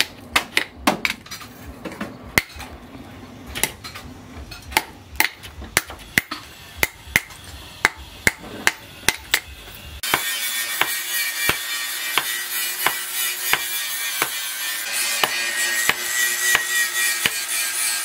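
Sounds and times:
hammer striking metal on anvil: 0:03.6 - 0:18.0.

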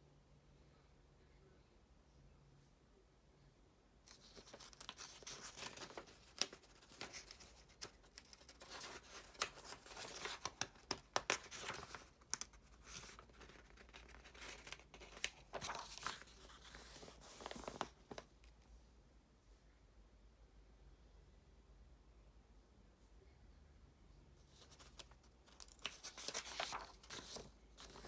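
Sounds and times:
paper pages rustling: 0:04.1 - 0:18.5, 0:24.4 - 0:28.0.

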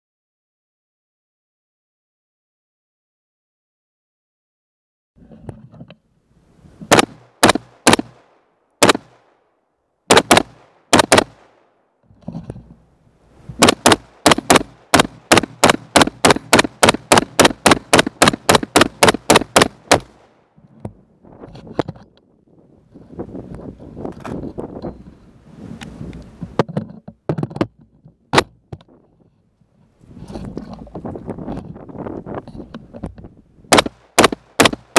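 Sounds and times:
rifle firing: 0:06.9 - 0:09.3, 0:10.1 - 0:11.6, 0:13.6 - 0:20.3, 0:33.7 - 0:34.9.

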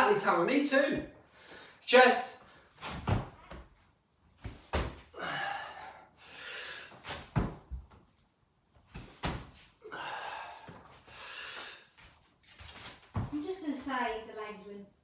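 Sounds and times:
thuds on rubber gym floor: 0:04.4 - 0:05.1
heavy breaths out: 0:05.0 - 0:07.3, 0:09.7 - 0:12.1.

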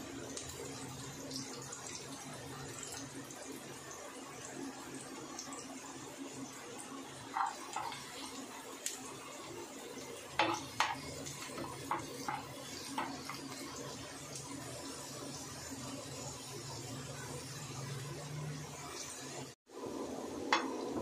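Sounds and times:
garlic sizzling in oil: 0:00.0 - 0:21.0
metal spoon scraping a pan: 0:07.4 - 0:08.2.

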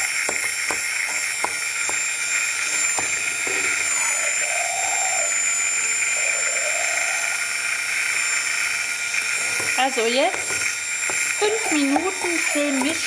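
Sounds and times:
stick blender motor whining: 0:00.0 - 0:13.0
blender knocking against steel bowl: 0:09.6 - 0:13.0.

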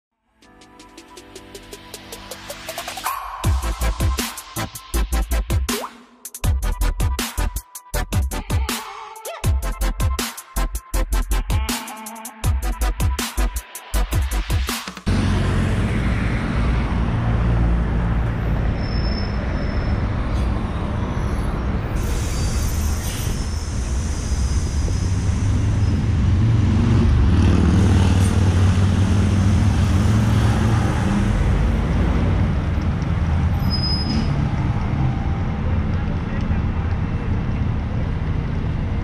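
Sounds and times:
bus engines rumbling: 0:15.1 - 0:39.0
brief high squeaks: 0:18.7 - 0:24.7, 0:33.6 - 0:34.5
air brake hiss: 0:21.9 - 0:25.7.

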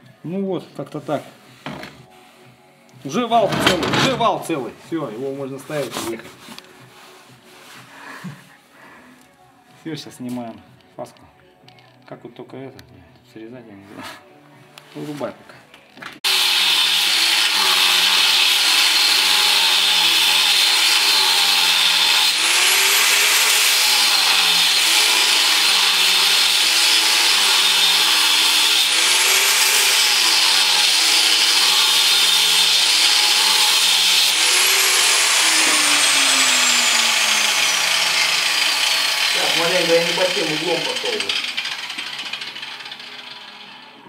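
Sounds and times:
angle grinder grinding steel: 0:16.2 - 0:44.0.

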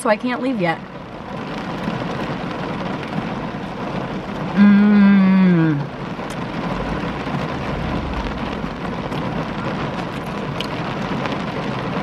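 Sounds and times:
rain on a car roof: 0:00.0 - 0:12.0
person humming: 0:04.6 - 0:05.9.

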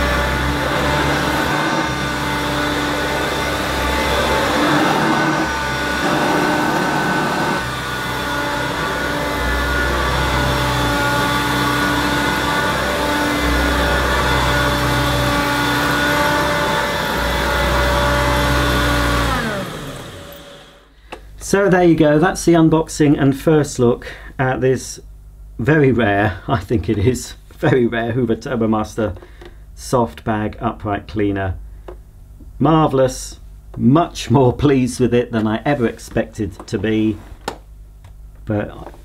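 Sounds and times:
upright vacuum cleaner on carpet: 0:00.0 - 0:20.9.

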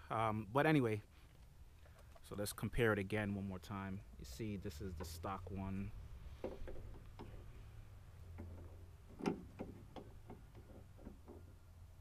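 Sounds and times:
metal parts clicking and tapping: 0:06.4 - 0:07.6.

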